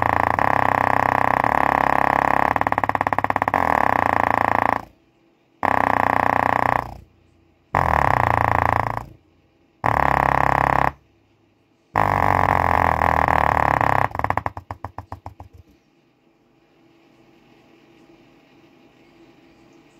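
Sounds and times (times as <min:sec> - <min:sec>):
distorted subwoofer bass blasts: 0:00.0 - 0:04.9, 0:12.0 - 0:15.4.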